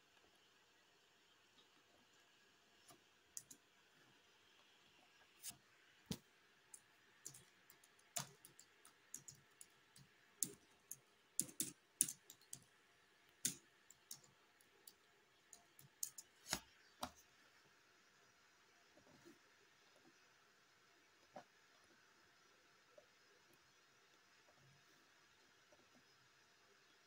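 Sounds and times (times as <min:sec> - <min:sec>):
mouse clicks: 0:05.4 - 0:12.7, 0:13.4 - 0:17.2
computer keyboard typing: 0:06.8 - 0:12.8, 0:13.4 - 0:16.6.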